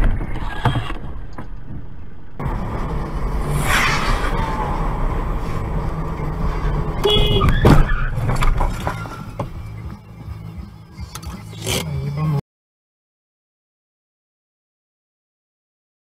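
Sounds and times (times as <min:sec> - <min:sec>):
car engine and road noise: 0:00.0 - 0:12.4.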